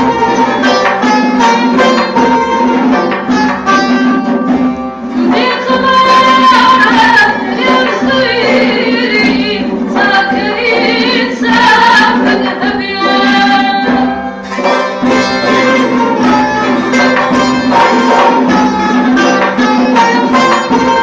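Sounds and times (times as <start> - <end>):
long-necked lute: 0.0 - 21.0
plucked oud: 0.0 - 21.0
woman singing: 5.2 - 14.4.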